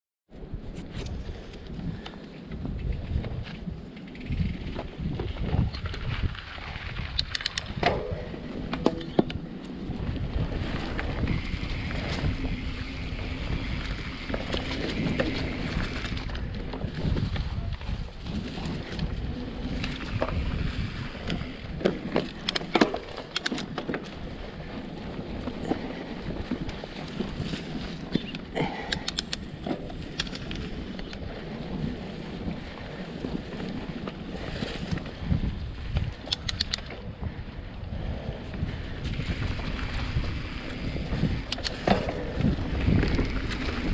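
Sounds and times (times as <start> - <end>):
bike drivetrain and frame rattle: 0.4 - 43.9
bike tyres on gravel and dirt: 0.4 - 43.9
wind buffeting microphone: 0.4 - 43.9
sharp clicks and rattles: 7.0 - 9.4, 22.2 - 24.2, 28.2 - 31.2, 36.2 - 37.0, 41.4 - 43.7.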